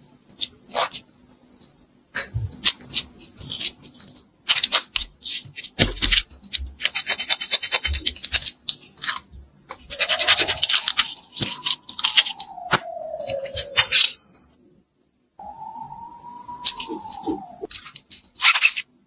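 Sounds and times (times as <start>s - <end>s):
plastic clicking and scratching: 2.5s - 14.2s
rising tone: 15.4s - 17.7s.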